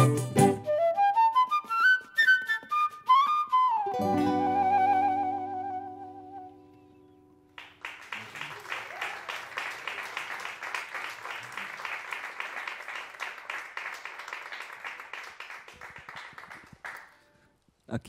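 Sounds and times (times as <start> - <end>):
flute and guitar note: 0.0 - 7.3
audience applause: 7.6 - 17.2.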